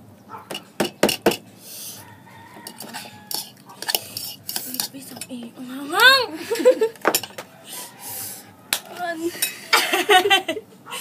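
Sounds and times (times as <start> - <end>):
forks clinking on ceramic bowls: 2.6 - 5.4.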